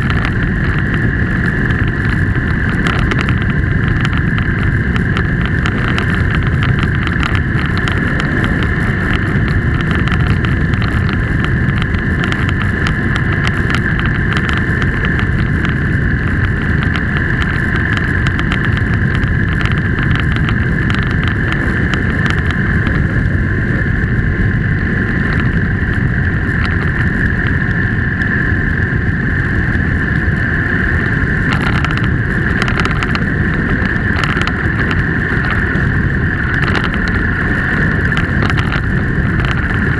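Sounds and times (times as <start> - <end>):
constant high whine: 0.0 - 39.9
vehicle engine and tyre rumble: 0.0 - 39.9.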